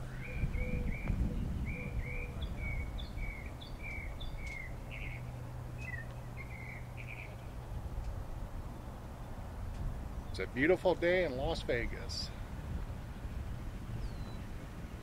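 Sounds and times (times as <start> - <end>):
small birds chirping: 0.0 - 10.7, 14.0 - 15.0
low steady rumble: 0.0 - 15.0.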